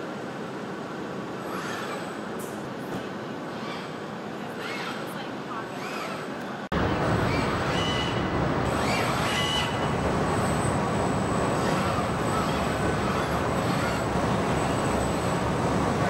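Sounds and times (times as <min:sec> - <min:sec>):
faint high squeaks: 0:04.6 - 0:05.2
factory machinery din: 0:06.7 - 0:16.0.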